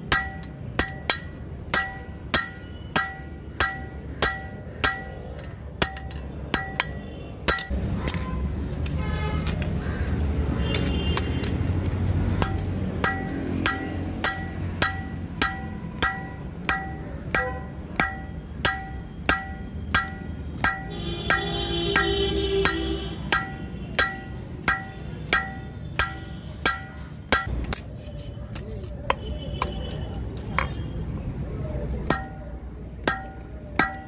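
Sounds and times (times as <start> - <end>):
hammer ringing on anvil: 0.0 - 7.7, 12.4 - 27.5, 33.1 - 34.0.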